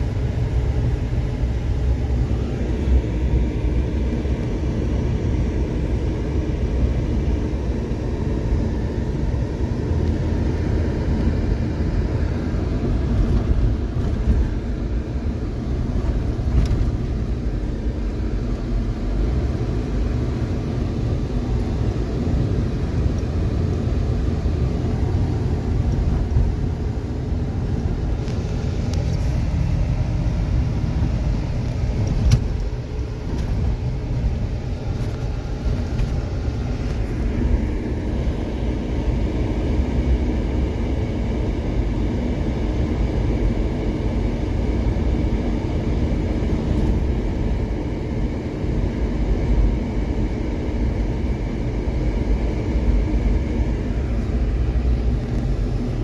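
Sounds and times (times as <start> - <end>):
tyre and road noise: 0.0 - 40.2, 51.9 - 56.0
car engine running: 0.0 - 56.0.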